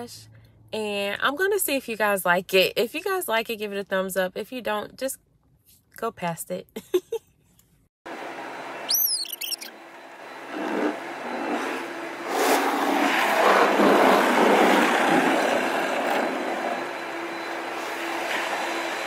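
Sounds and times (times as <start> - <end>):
short high squeal: 8.8 - 9.8
cloth brushes scrubbing windshield: 10.5 - 16.3
water and soap spraying: 10.5 - 16.8, 17.7 - 19.0.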